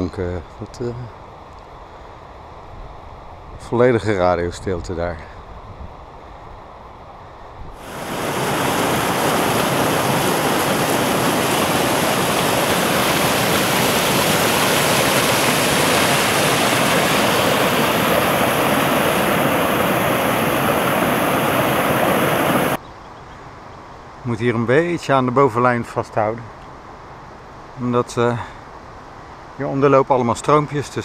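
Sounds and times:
stream rushing over rocks: 0:07.8 - 0:22.8.

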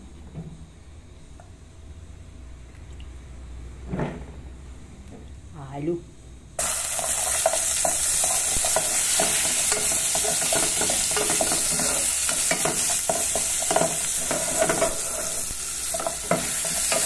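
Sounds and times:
garlic sizzling in oil: 0:06.6 - 0:17.0.

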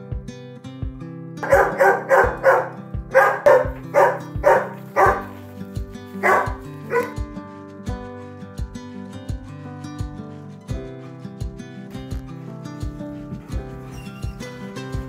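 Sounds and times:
background music: 0:00.0 - 0:15.0
dog barking: 0:01.4 - 0:05.6, 0:06.2 - 0:07.2.

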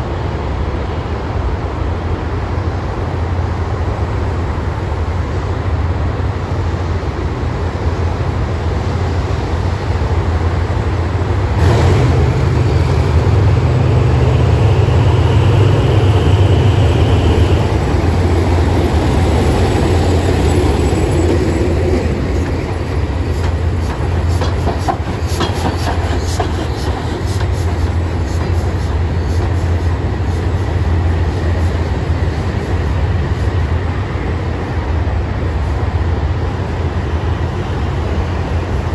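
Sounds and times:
locomotive engine humming: 0:02.6 - 0:38.9
wheels clicking over rail joints: 0:22.4 - 0:28.7.

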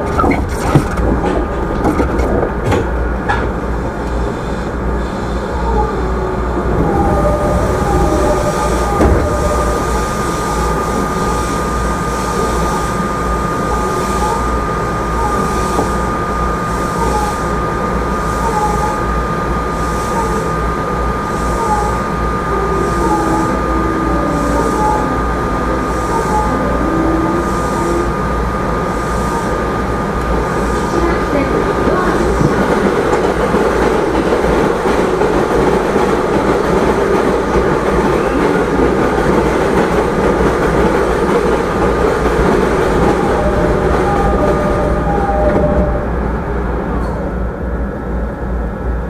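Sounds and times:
wheels rumbling on rail: 0:00.0 - 0:49.0
steady high tone: 0:05.3 - 0:35.6, 0:40.7 - 0:48.2.

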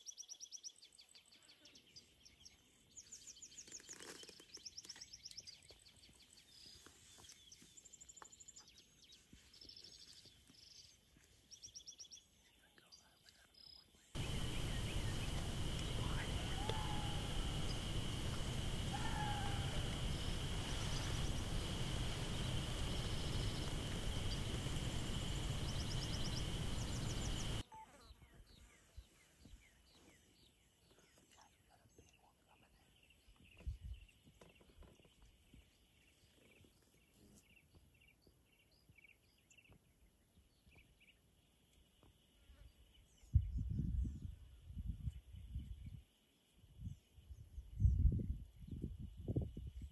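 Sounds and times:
bird chirps: 0:00.0 - 0:39.8
high insect drone: 0:14.2 - 0:27.6
low rumbling noise: 0:14.2 - 0:27.6.

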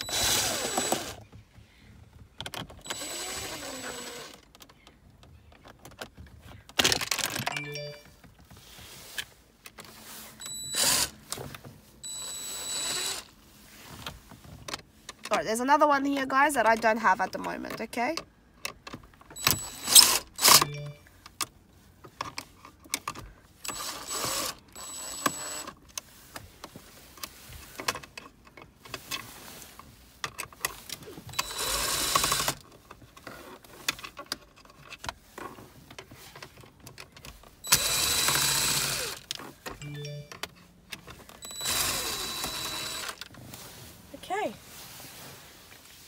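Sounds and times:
cordless drill running: 0:00.0 - 0:01.2, 0:02.9 - 0:04.4, 0:10.5 - 0:11.2, 0:12.0 - 0:13.4, 0:19.4 - 0:20.7, 0:23.7 - 0:25.7, 0:31.4 - 0:32.6, 0:37.7 - 0:39.3, 0:41.4 - 0:43.2
handling clicks and rattles: 0:04.3 - 0:10.0, 0:16.1 - 0:43.5.

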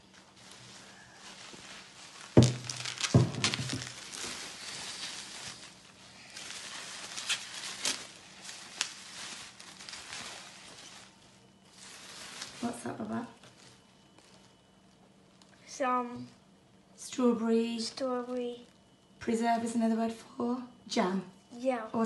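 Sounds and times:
bubble wrap crinkling: 0:00.0 - 0:16.4, 0:17.6 - 0:19.2
loud knocks: 0:02.4 - 0:03.9.

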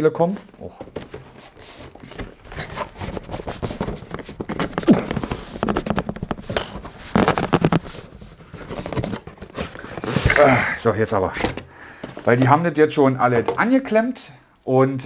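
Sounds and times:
cardboard and paper scraping and rustling: 0:00.6 - 0:10.6.

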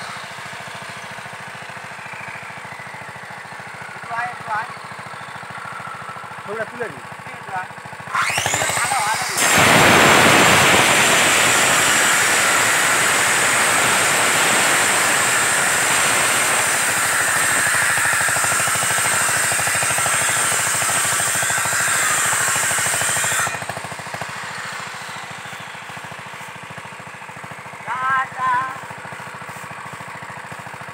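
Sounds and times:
chainsaw cutting wood: 0:07.9 - 0:27.8.

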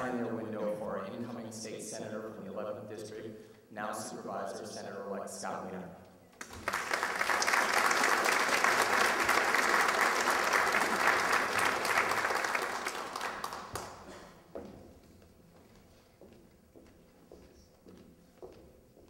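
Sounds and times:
audience applauding: 0:06.4 - 0:14.1.

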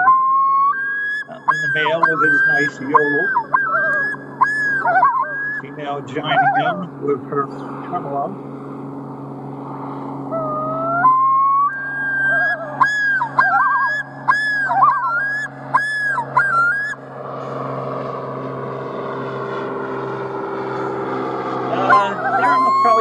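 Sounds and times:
loon yodel: 0:00.0 - 0:07.0, 0:10.3 - 0:17.0, 0:21.7 - 0:23.0
loon tremolo: 0:00.0 - 0:23.0
steady low drone: 0:00.0 - 0:23.0.

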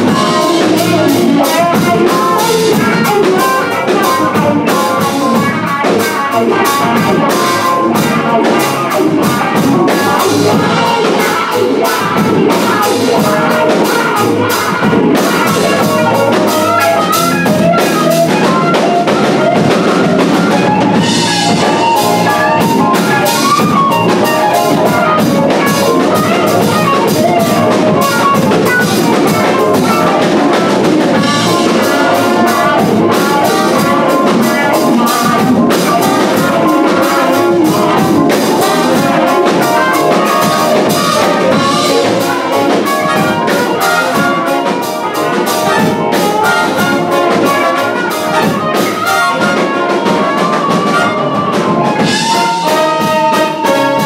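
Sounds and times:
big band playing funk: 0:00.0 - 0:54.0
brass section: 0:00.0 - 0:54.0
drum kit beat: 0:00.0 - 0:54.0
electric guitar: 0:00.0 - 0:54.0.

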